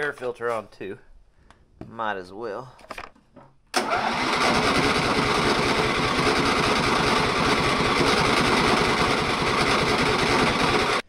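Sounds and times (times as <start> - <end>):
riding mower engine running: 3.8 - 11.0.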